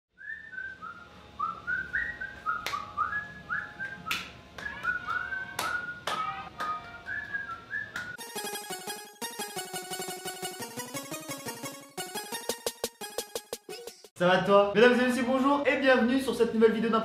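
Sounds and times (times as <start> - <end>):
person whistling a tune: 0.2 - 6.2, 6.8 - 8.2
music: 0.8 - 14.1.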